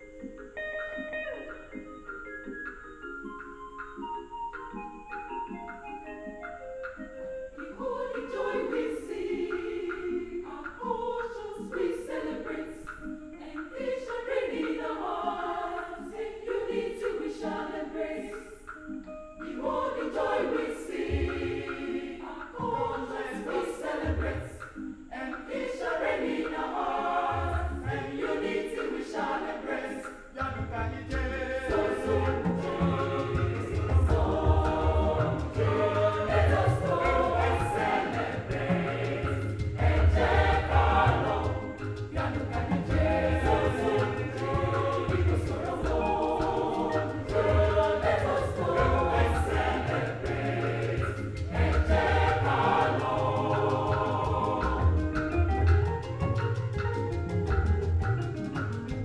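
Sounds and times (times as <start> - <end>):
choir singing: 6.9 - 55.9.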